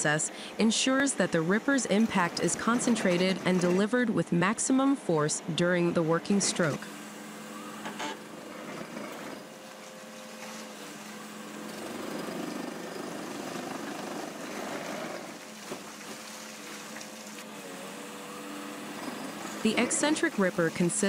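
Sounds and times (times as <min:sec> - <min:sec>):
excavator diesel engine running: 0:00.0 - 0:15.6, 0:17.1 - 0:21.0
hydraulic ripper grinding rock: 0:01.4 - 0:04.1, 0:05.7 - 0:21.0.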